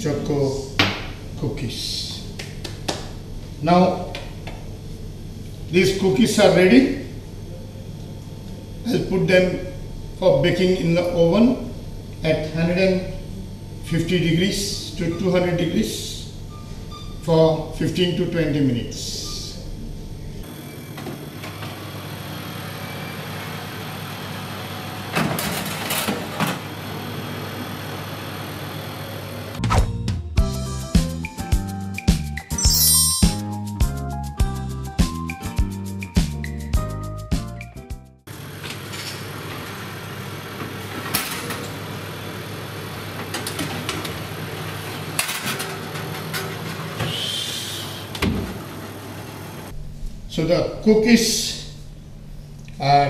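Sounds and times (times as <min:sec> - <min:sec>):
steady low hum: 0:00.0 - 0:20.5, 0:49.7 - 0:53.0
oven door shutting: 0:48.1 - 0:48.8.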